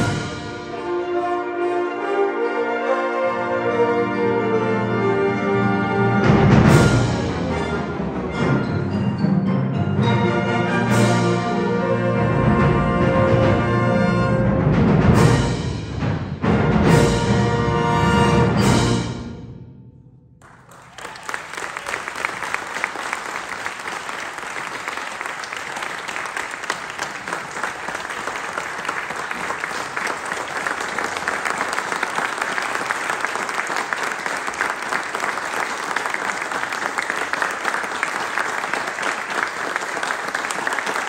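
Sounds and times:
audience applauding: 0:20.4 - 0:41.0.

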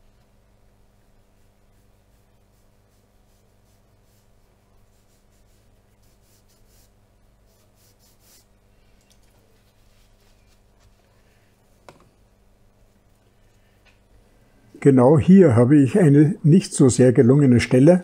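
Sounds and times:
low steady hum: 0:00.0 - 0:18.0
brush strokes on paper: 0:00.9 - 0:11.8.

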